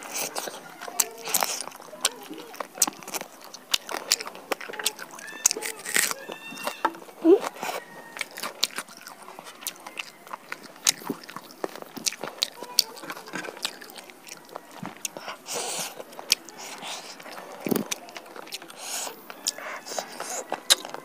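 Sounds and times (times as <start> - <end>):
crunching of chicken skin: 0.0 - 21.0
mouth chewing wet smacks: 0.0 - 21.0.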